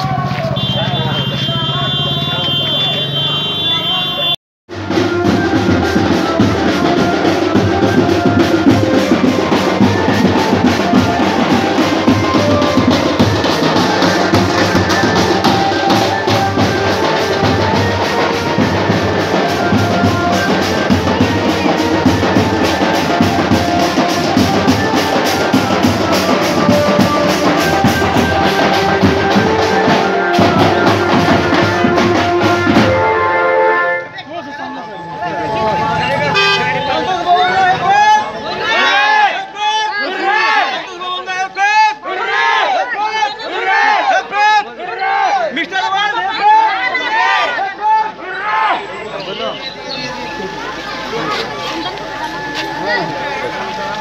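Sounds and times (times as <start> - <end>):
loud music with drum beat: 0.0 - 33.2.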